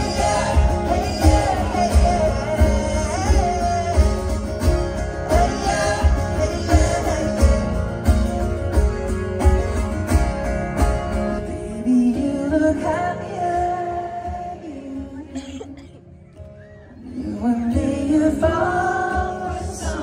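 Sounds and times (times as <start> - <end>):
man singing pop song: 0.0 - 8.6, 11.3 - 15.8, 17.1 - 20.0
acoustic guitar with steady beat: 0.0 - 16.6, 17.2 - 20.0.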